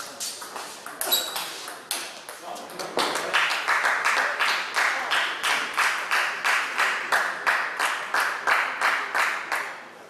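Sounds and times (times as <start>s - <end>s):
spectators clapping in rhythm: 2.9s - 10.0s.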